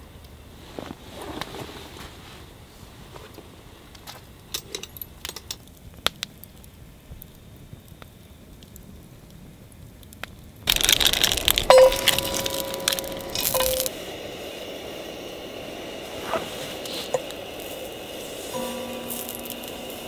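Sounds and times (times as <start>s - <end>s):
cooking gear clinking: 4.5s - 5.6s, 10.7s - 13.9s, 18.6s - 20.0s
food sizzling in a pan: 10.7s - 20.0s
thin steady tone: 11.6s - 20.0s.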